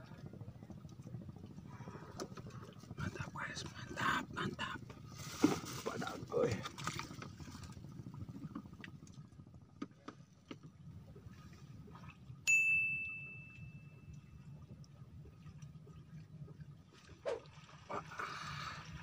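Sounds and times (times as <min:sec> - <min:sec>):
bell-like ding: 0:12.5 - 0:14.1.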